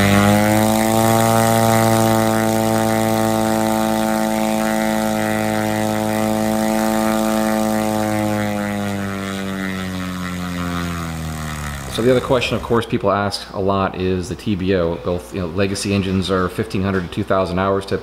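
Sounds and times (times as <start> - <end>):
propeller engine running: 0.0 - 13.3.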